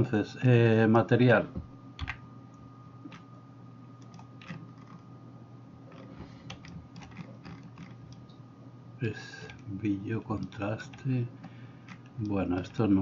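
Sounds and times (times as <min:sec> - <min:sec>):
faint hum with thin whine: 0:00.0 - 0:13.0
mouse and keyboard clicks: 0:04.0 - 0:05.0, 0:05.9 - 0:08.2.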